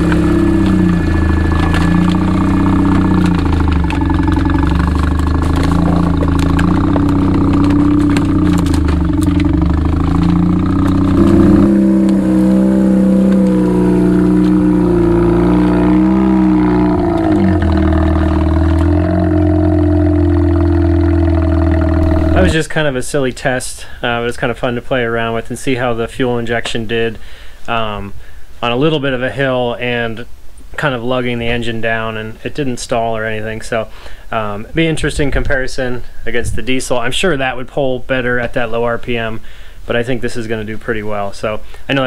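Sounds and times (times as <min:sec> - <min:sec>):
firewood clattering under tyres: 0:00.0 - 0:12.2, 0:15.2 - 0:22.5
rotary engine lugging at low revs: 0:00.0 - 0:22.7.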